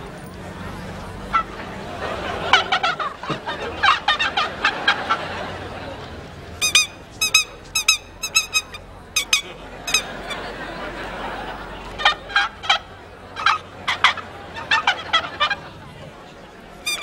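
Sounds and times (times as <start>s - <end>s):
chattering gobbling bird calls: 1.2s - 5.8s, 6.6s - 15.8s
short high-pitched squeaks: 6.6s - 10.4s, 16.8s - 17.0s.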